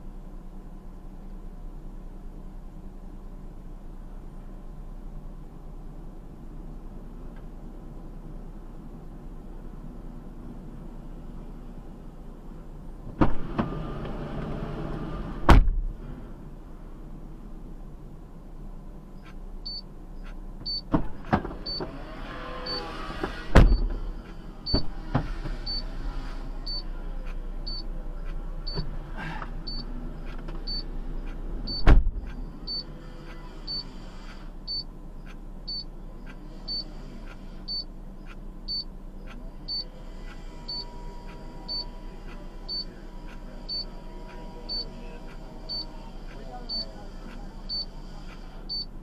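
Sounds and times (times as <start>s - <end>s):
low steady hum: 0.0s - 49.0s
car warning chime beeping: 19.2s - 20.9s, 21.6s - 21.9s, 22.6s - 23.0s, 24.6s - 25.9s, 26.6s - 28.9s, 29.6s - 34.0s, 34.6s - 39.9s, 40.6s - 49.0s
sharp thumps: 22.7s - 25.8s.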